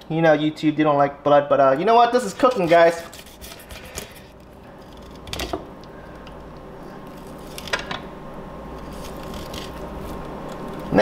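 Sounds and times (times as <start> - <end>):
knife cutting through fish: 2.4 - 4.2.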